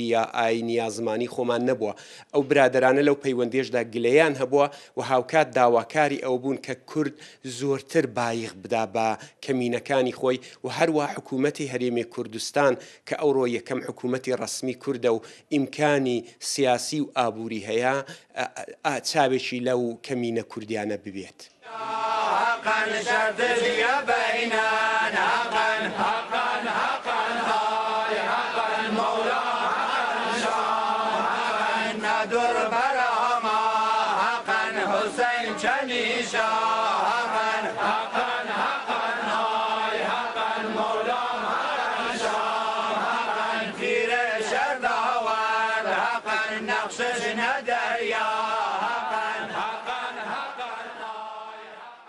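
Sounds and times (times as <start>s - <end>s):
voices chanting: 21.6s - 52.0s.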